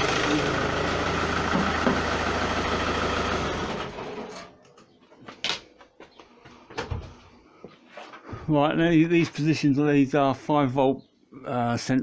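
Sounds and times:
diesel engine running: 0:00.0 - 0:04.3.

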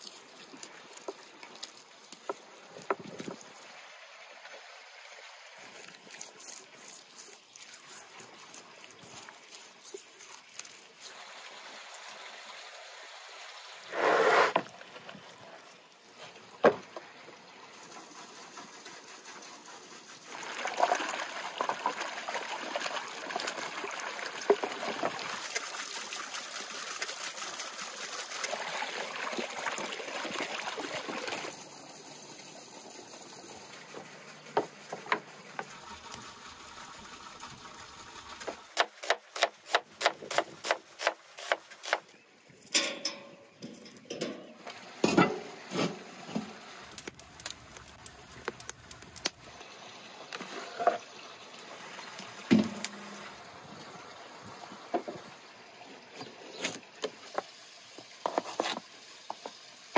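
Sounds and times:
water running: 0:20.2 - 0:39.4, 0:44.2 - 0:59.9.

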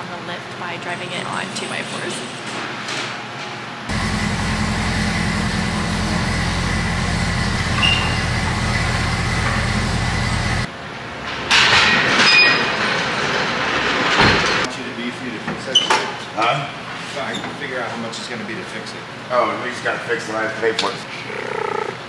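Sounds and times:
car engine idling: 0:03.9 - 0:10.7.

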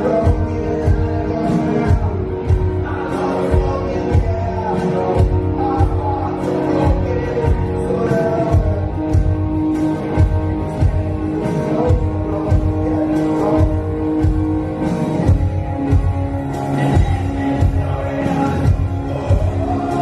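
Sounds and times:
electric guitar: 0:00.0 - 0:20.0.

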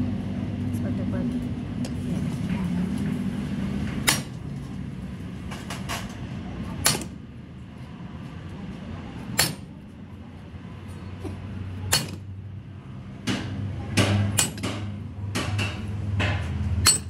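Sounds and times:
sledgehammer striking steel: 0:04.0 - 0:04.4, 0:06.8 - 0:07.2, 0:09.4 - 0:09.7, 0:11.9 - 0:12.3, 0:13.2 - 0:17.0.

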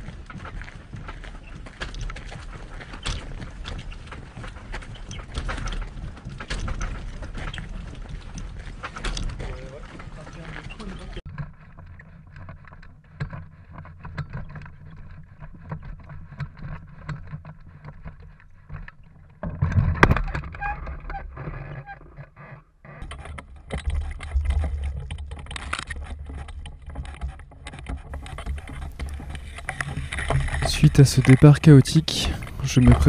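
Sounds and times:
footsteps crunching on gravel: 0:00.0 - 0:11.2, 0:28.1 - 0:33.0
aluminium frame rattling and knocking: 0:00.0 - 0:11.4, 0:23.0 - 0:33.0.

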